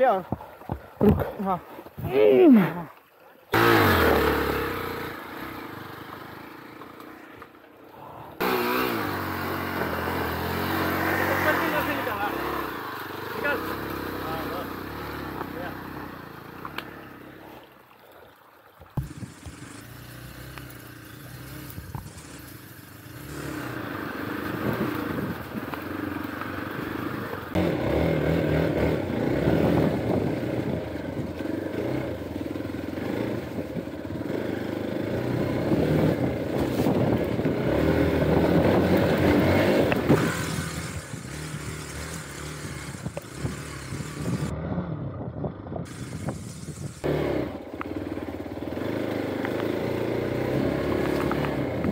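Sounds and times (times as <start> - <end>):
motorcycle engine on dirt trail: 3.5 - 17.8, 19.0 - 51.9.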